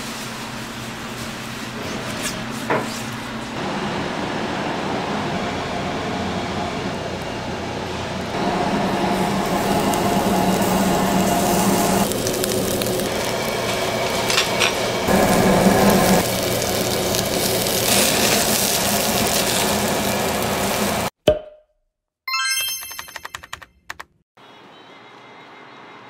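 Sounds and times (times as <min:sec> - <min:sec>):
fan hum: 0:00.0 - 0:21.1
beef sizzling on a grill: 0:09.0 - 0:21.1.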